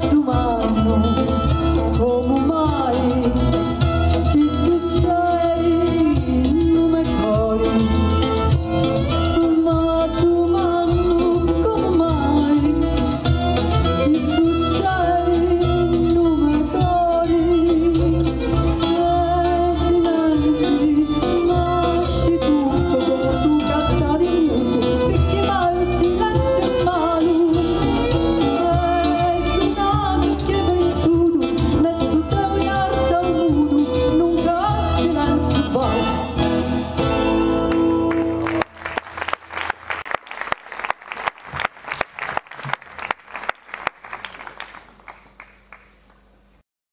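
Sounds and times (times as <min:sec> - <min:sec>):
woman singing: 0:00.0 - 0:08.2, 0:09.2 - 0:13.2, 0:14.0 - 0:36.4
acoustic guitars playing: 0:00.0 - 0:39.6.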